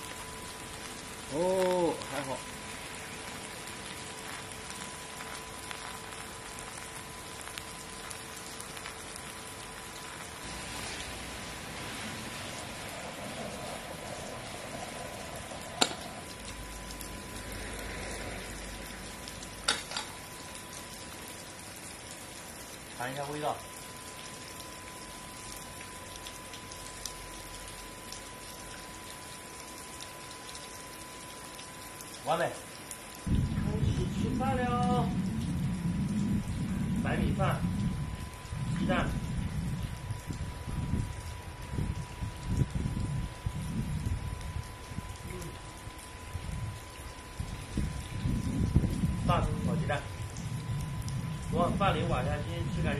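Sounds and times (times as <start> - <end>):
food sizzling in a wok: 0.0 - 21.4
faint steady whine: 0.0 - 52.9
steady rain patter: 0.0 - 52.9.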